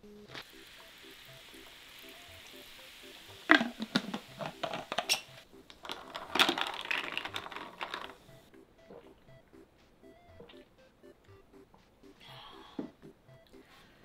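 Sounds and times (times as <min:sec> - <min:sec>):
ice cubes clinking in glass: 0:05.8 - 0:08.2.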